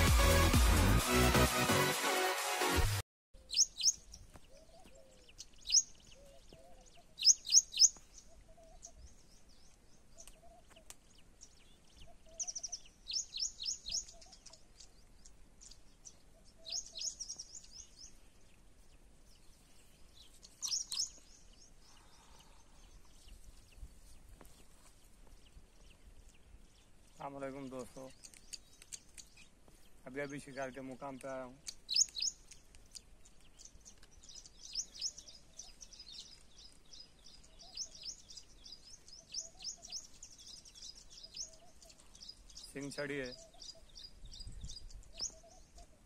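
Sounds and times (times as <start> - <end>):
sharp high bird calls: 3.4 - 9.0, 16.3 - 17.9, 20.3 - 21.4, 31.7 - 32.5, 44.8 - 46.0.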